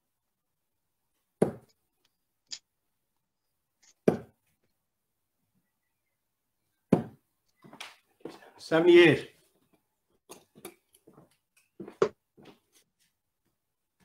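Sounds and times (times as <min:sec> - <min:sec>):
darts thudding into dartboard: 0:01.4 - 0:01.7, 0:04.0 - 0:04.4, 0:06.9 - 0:07.2.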